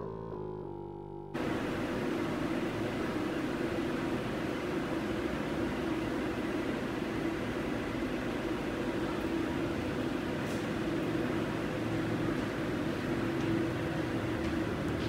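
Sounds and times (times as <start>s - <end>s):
mechanical hum: 1.3s - 15.0s
even hiss: 1.4s - 12.0s.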